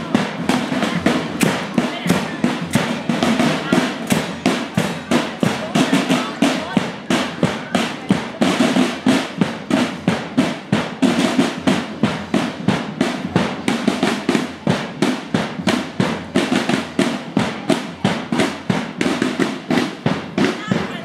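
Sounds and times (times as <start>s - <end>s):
marching drums beating: 0.0s - 21.0s.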